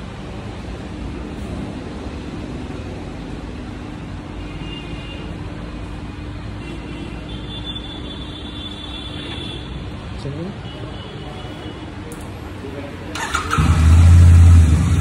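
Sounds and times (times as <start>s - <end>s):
motorcycle engine idling: 13.2s - 15.0s.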